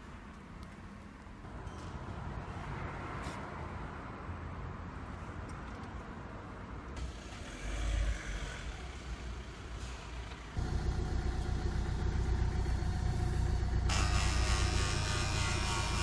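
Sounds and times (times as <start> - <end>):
car engine idling: 8.7 - 15.4.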